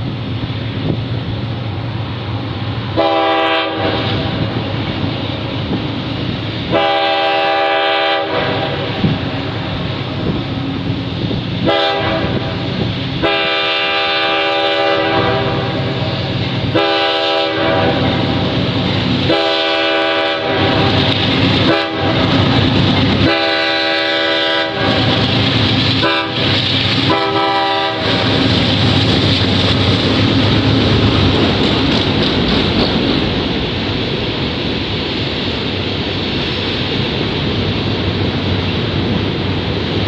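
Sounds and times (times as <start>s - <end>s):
train rumble: 0.0s - 40.0s
locomotive horn blasts: 3.0s - 4.4s, 6.7s - 9.0s, 11.6s - 12.6s, 13.2s - 15.9s, 16.7s - 18.5s, 19.3s - 21.0s, 21.6s - 22.4s, 23.2s - 25.2s, 26.0s - 26.5s, 27.1s - 28.4s
hopper cars rolling: 8.2s - 40.0s.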